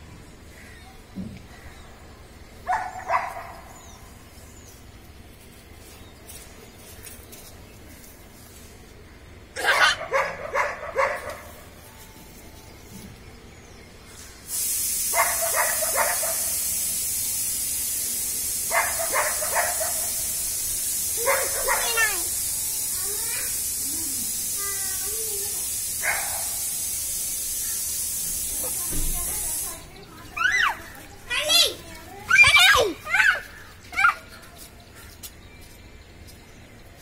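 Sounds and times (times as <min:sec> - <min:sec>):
puppy yapping: 0:09.6 - 0:11.4
steady hiss: 0:11.2 - 0:33.9.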